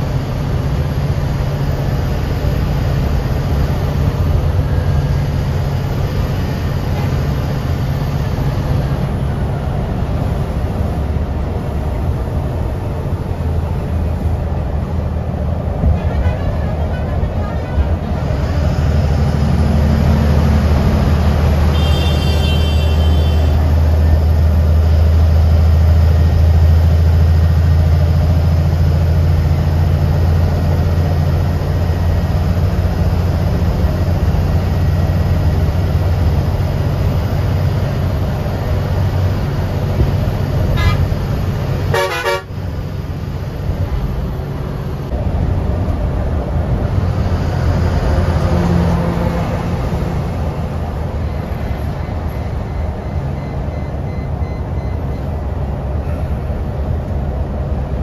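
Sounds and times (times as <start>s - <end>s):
bus engine droning: 0.0s - 58.0s
horn toots: 21.7s - 23.6s, 40.7s - 41.1s, 41.9s - 42.6s.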